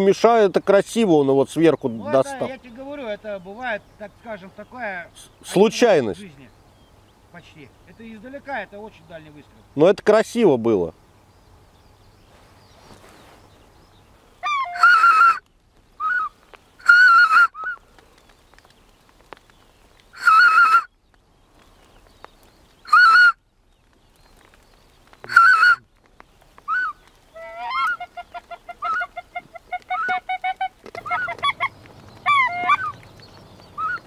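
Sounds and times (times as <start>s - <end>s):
goose cackling: 14.4s - 15.4s, 16.0s - 17.8s, 20.2s - 20.9s, 22.9s - 23.4s, 25.3s - 25.8s, 26.7s - 33.1s, 33.7s - 34.0s
goose honking: 14.4s - 15.4s, 16.0s - 17.8s, 20.2s - 20.9s, 22.9s - 23.4s, 25.3s - 25.8s, 26.7s - 33.0s, 33.8s - 34.0s.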